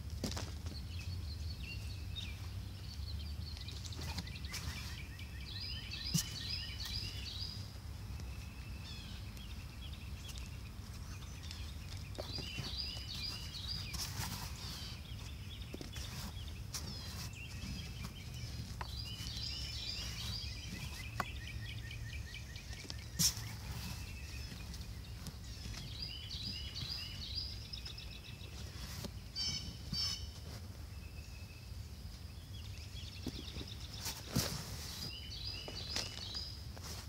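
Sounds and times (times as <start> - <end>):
birds chirping: 0.2 - 37.0
hand digging through soil: 10.2 - 30.7, 33.2 - 37.0.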